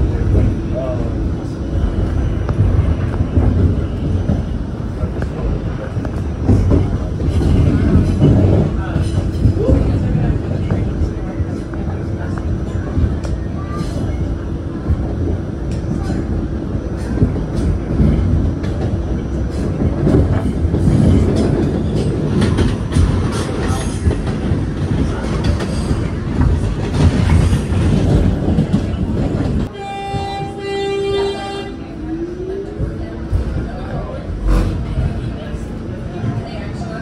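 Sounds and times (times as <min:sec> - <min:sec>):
passing train: 0:00.0 - 0:37.0
subway train wheels rumbling on rails: 0:00.0 - 0:37.0
train horn: 0:29.7 - 0:32.3.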